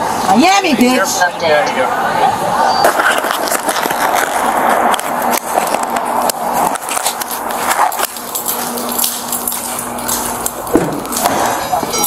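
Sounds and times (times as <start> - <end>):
faint steady hum: 0.0 - 12.0
camera rustling and scuffing: 2.9 - 11.7
footsteps on concrete: 2.9 - 12.0.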